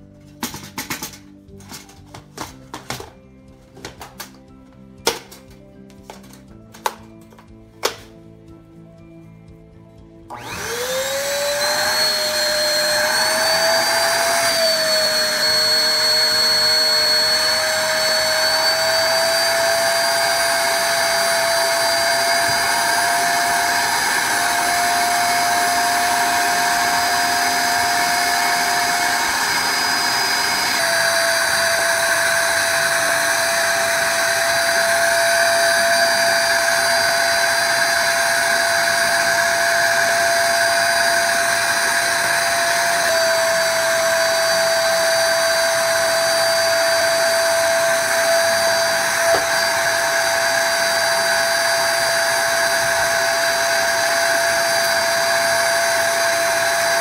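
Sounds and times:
vacuum motor whine: 0:10.3 - 0:57.0.

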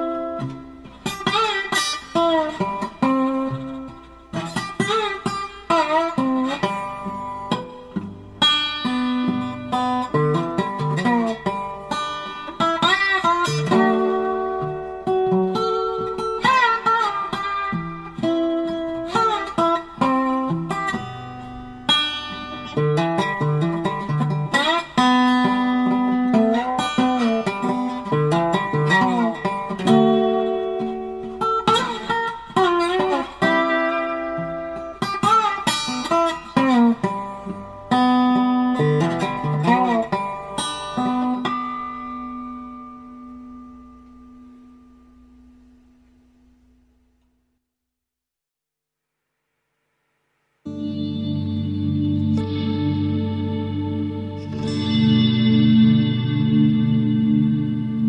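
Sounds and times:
solo plucked-string melody: 0:00.0 - 0:45.4, 0:50.7 - 0:58.0.

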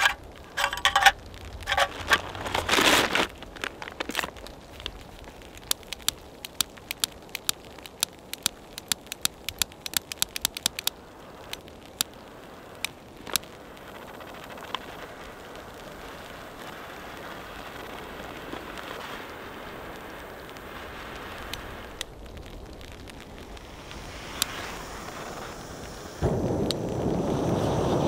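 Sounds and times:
jet flame hissing: 0:05.0 - 0:28.0
torch lighter igniter clicking: 0:05.6 - 0:12.1, 0:23.9 - 0:26.9.

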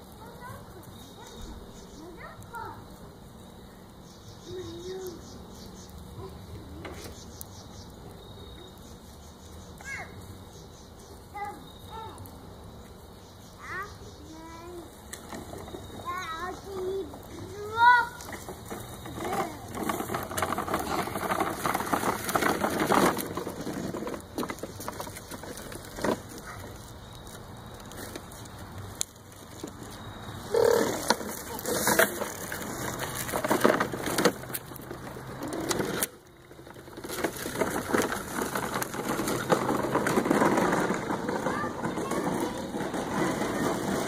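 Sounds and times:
plastic toy truck rattling: 0:15.2 - 0:26.9, 0:30.5 - 0:44.0
footsteps crunching dry leaves: 0:20.0 - 0:40.8.

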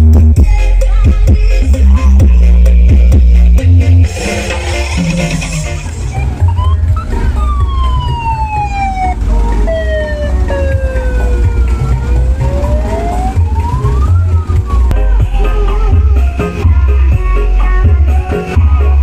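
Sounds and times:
heavy pulsing bass: 0:00.0 - 0:19.0
slow siren-like wail: 0:06.0 - 0:16.0.

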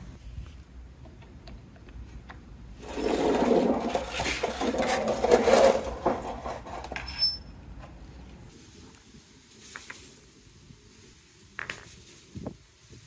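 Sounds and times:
plastic track pieces clattering: 0:02.8 - 0:07.0.

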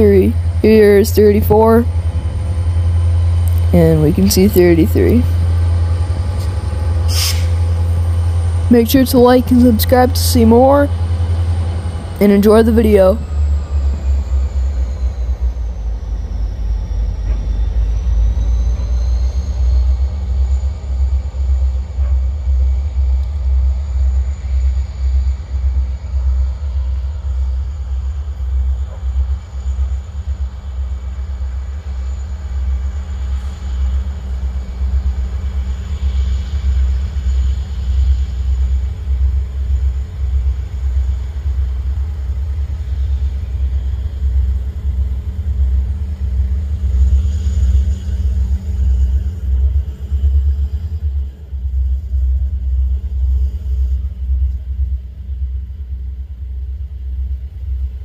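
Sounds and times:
faint steady hum: 0:00.0 - 0:06.6, 0:07.6 - 0:58.0
diesel locomotive rumble: 0:00.0 - 0:58.0.

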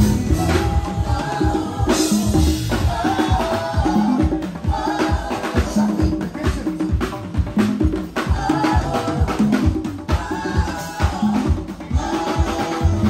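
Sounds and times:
electric bass: 0:00.0 - 0:04.5
congas: 0:00.0 - 0:13.0
drum kit: 0:00.0 - 0:13.0
shaker percussion: 0:00.0 - 0:13.0.

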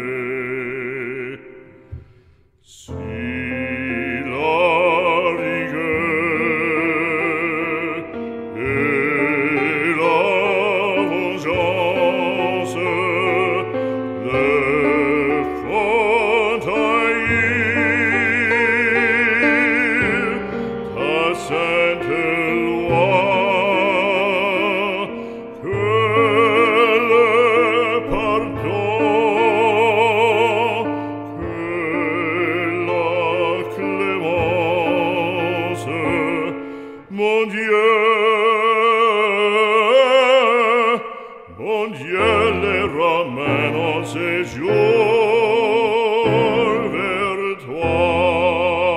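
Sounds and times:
operatic voice singing: 0:00.0 - 0:48.9.

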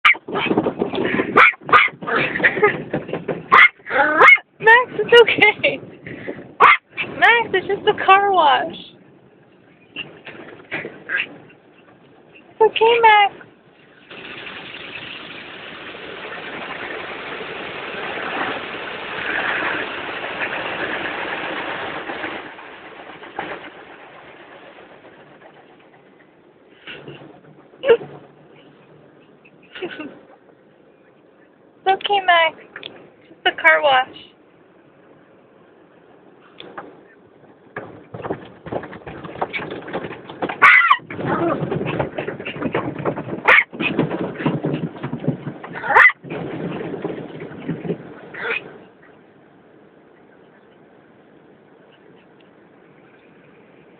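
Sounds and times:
puppy barking: 0:00.0 - 0:00.3, 0:01.4 - 0:02.3, 0:03.5 - 0:04.5, 0:06.6 - 0:06.9, 0:40.6 - 0:41.1, 0:43.5 - 0:43.7, 0:45.8 - 0:46.2
car wash rushing noise: 0:13.8 - 0:28.1.

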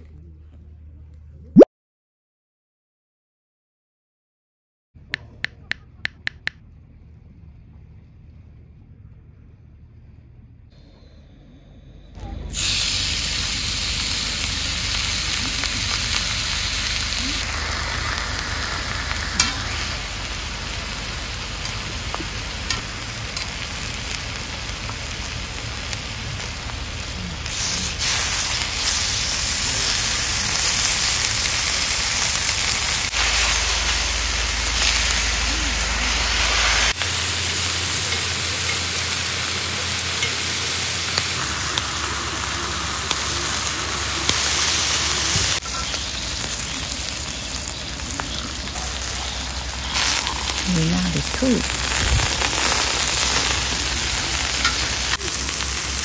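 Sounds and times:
meat sizzling on griddle: 0:12.5 - 0:56.0.

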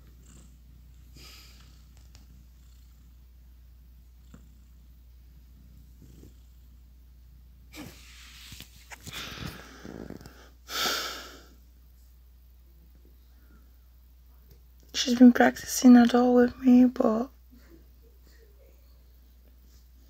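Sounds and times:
cat purring: 0:00.0 - 0:10.8.

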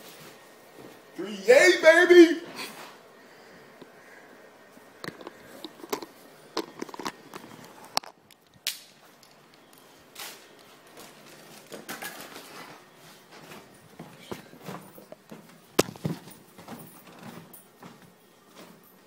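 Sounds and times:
phone handling noise: 0:05.0 - 0:08.5.

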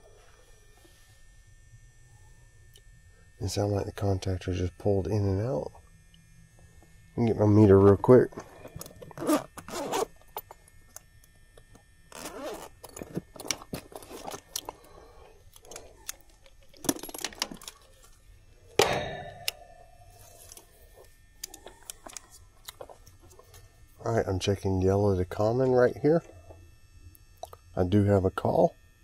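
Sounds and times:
handling clicks and rattles: 0:15.5 - 0:18.2
loud knock: 0:18.8 - 0:19.6.

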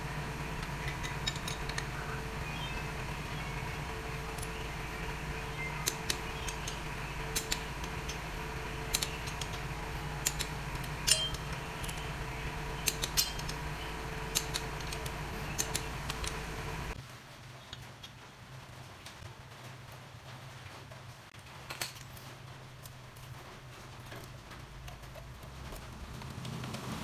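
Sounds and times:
steady background hum: 0:00.0 - 0:17.0, 0:21.4 - 0:27.0
metallic wrench clinks: 0:10.2 - 0:12.0.

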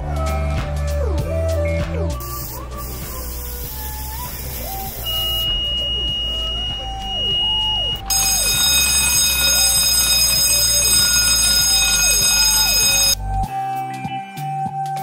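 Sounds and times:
steady high tone: 0:02.9 - 0:13.2
fire alarm bell ringing: 0:05.0 - 0:13.2.

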